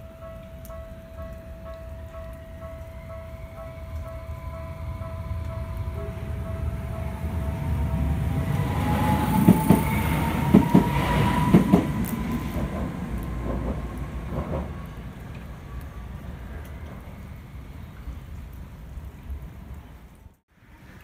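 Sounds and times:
train motor whine: 2.5 - 15.0
train wheels clacking over rail joints: 9.0 - 14.9.

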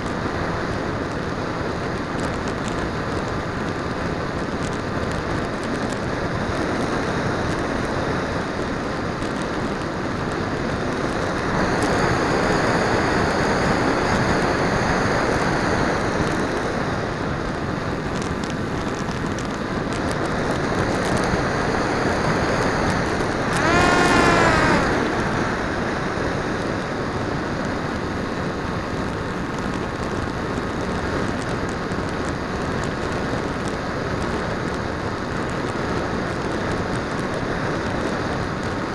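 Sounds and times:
motor and propeller: 23.4 - 25.3.

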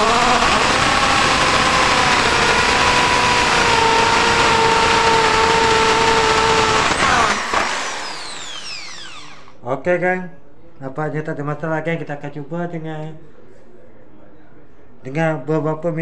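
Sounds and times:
drill boring into wood: 0.0 - 9.6.

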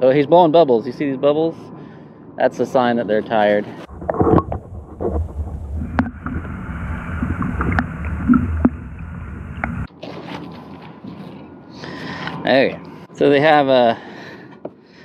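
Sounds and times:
muffled underwater river rushing: 3.8 - 9.9.

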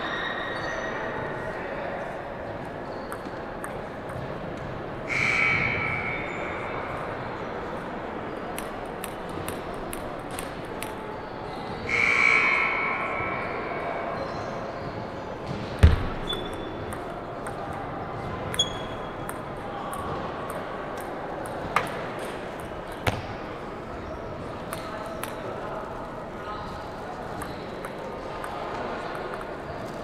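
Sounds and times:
sneaker squeaks: 2.7 - 3.4, 11.4 - 17.5, 18.2 - 20.2, 22.9 - 25.4, 27.3 - 27.9
ping pong ball clicking off paddles: 3.1 - 4.7, 8.5 - 11.0, 15.8 - 23.3, 24.6 - 25.5, 27.3 - 30.0.

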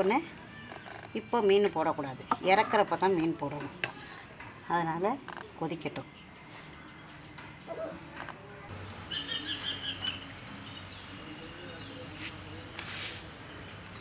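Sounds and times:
bird chirping: 5.1 - 12.7.

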